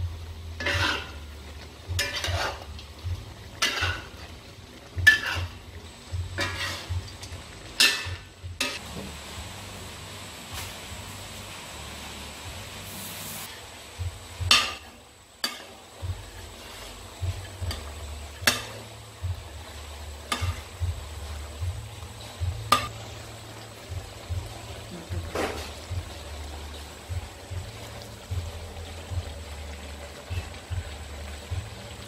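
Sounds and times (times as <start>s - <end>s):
meat sizzling: 0.0s - 32.0s
metal spatula scraping a wok: 0.6s - 2.8s, 3.5s - 4.4s, 5.0s - 5.7s, 6.3s - 7.2s, 7.8s - 8.8s, 14.5s - 23.2s, 25.2s - 27.0s.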